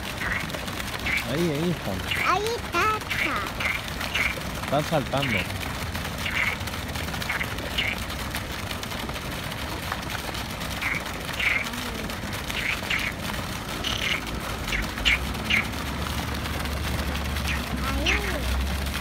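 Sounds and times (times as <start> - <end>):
frogs croaking: 0.1 - 2.3, 3.1 - 4.6, 5.2 - 5.5, 6.2 - 8.1, 10.7 - 15.9, 17.4 - 18.4.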